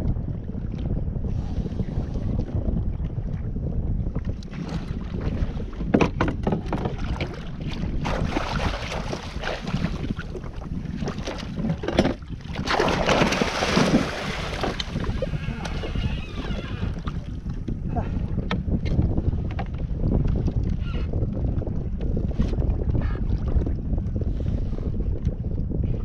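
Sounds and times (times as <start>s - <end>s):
wind rumble on microphone: 0.0s - 26.0s
water splashing: 6.9s - 16.1s.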